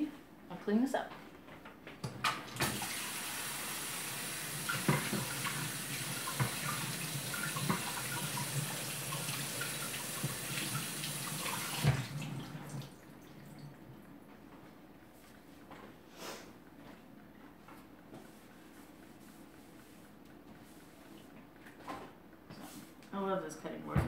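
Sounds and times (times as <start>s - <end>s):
tap running into sink: 4.6s - 12.9s.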